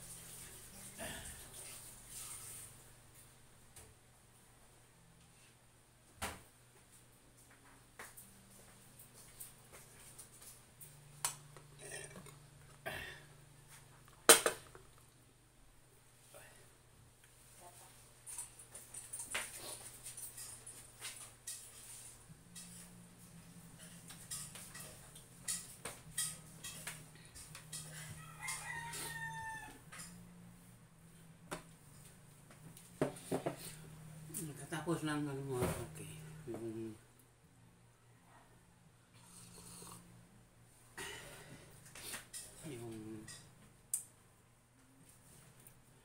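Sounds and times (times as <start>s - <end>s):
low steady hum: 0.0s - 28.6s
faint rooster crowing: 27.8s - 30.5s.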